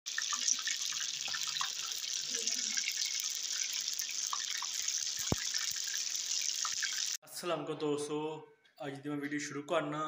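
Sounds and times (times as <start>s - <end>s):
meat sizzling in hot oil: 0.1s - 7.2s.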